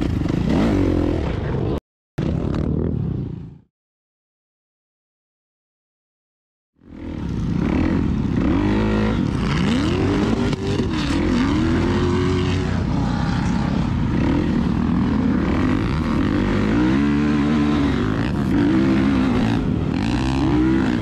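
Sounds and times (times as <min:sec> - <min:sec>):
off-road vehicle engines revving: 0:00.0 - 0:01.8, 0:06.8 - 0:21.0.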